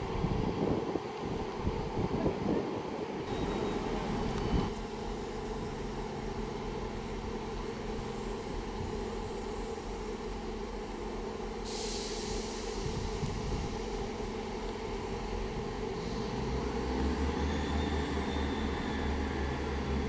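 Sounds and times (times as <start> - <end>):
wind buffeting microphone: 0.0 - 3.3, 12.8 - 16.0
diesel engines idling: 3.2 - 20.0.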